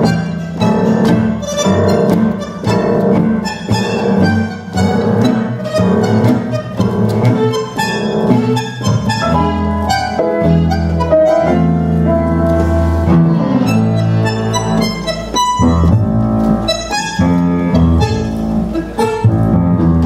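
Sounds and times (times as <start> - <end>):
bandoneon: 0.0 - 20.0
bowed strings: 0.0 - 20.0
double bass: 0.0 - 20.0
piano: 0.0 - 20.0.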